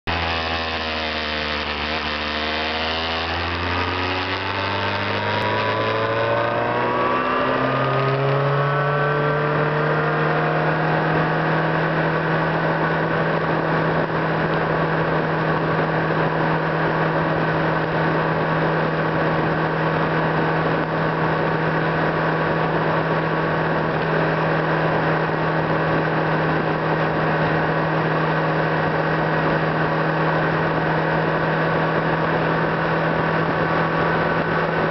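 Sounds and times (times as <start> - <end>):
car engine: 0.0 - 34.9
road noise: 0.0 - 34.9.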